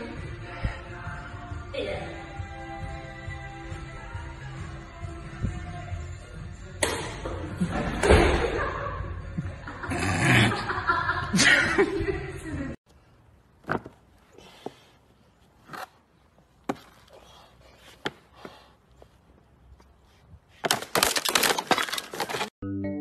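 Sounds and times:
person laughing loudly: 0:08.3 - 0:12.7.

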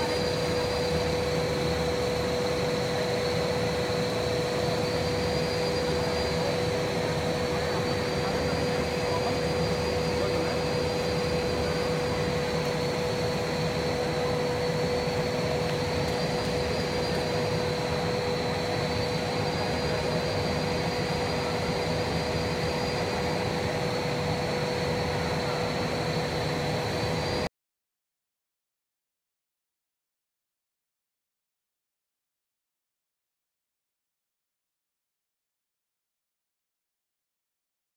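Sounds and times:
machine hum: 0:00.0 - 0:27.5
mid-pitched whine: 0:00.0 - 0:27.5.

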